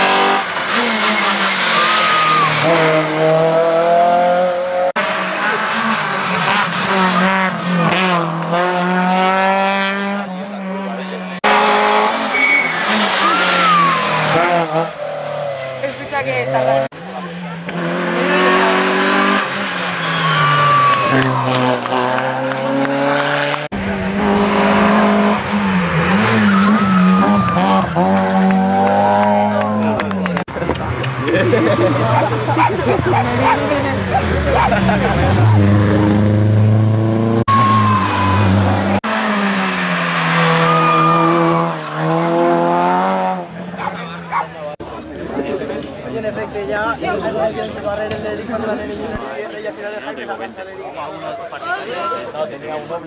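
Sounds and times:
rally car engines revving: 0:00.0 - 0:53.0.

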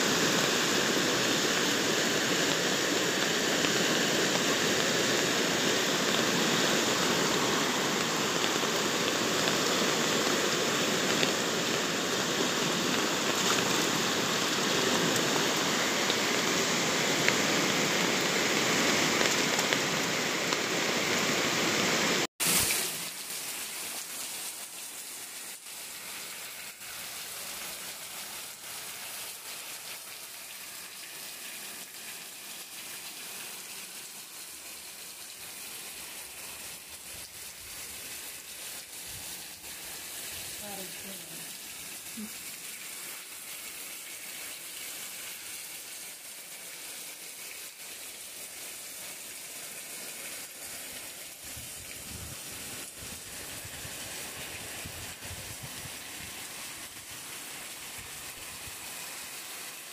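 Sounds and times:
river water rushing: 0:00.0 - 0:23.5
heavy rain falling: 0:00.0 - 0:59.9.

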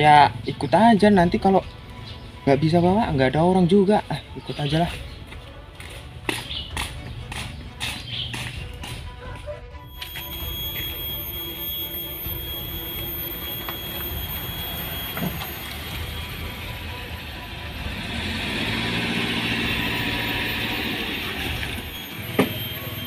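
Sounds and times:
vehicle engine running: 0:10.1 - 0:23.0.

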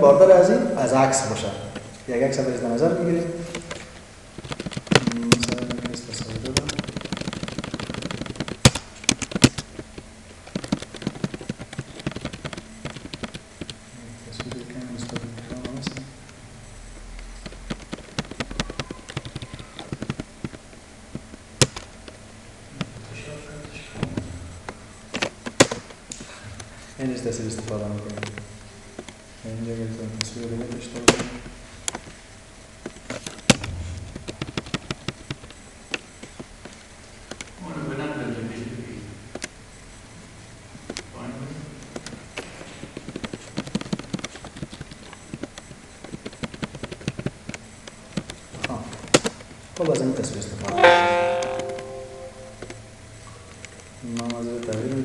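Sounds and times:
mouse scroll wheel clicks: 0:04.4 - 0:09.6, 0:10.5 - 0:13.8, 0:17.4 - 0:20.6, 0:43.0 - 0:47.6.

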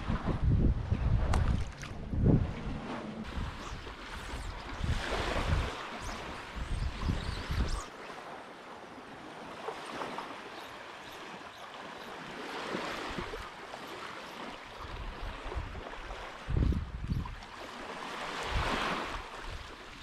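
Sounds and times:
wind buffeting microphone: 0:00.0 - 0:07.9, 0:14.8 - 0:17.4, 0:18.3 - 0:19.6
small waves lapping on sand: 0:02.8 - 0:20.0.

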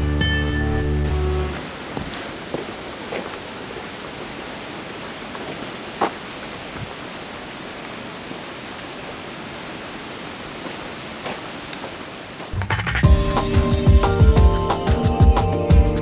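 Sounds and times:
music: 0:00.0 - 0:01.6, 0:12.6 - 0:16.0
rushing outdoor background noise: 0:00.0 - 0:16.0.

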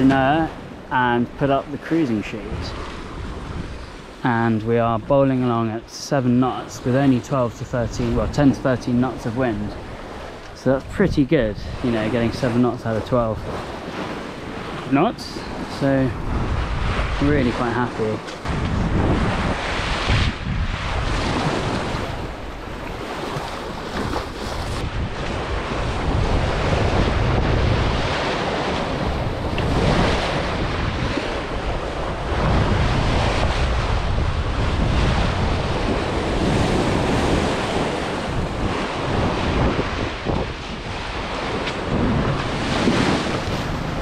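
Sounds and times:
water rushing along hull: 0:00.0 - 0:44.0
wind buffeting microphone: 0:02.3 - 0:05.9, 0:06.6 - 0:44.0.

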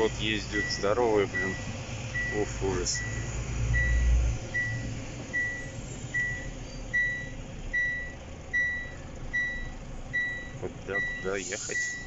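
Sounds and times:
truck engine running: 0:00.0 - 0:12.0
short high warning beeps: 0:05.4 - 0:12.0.

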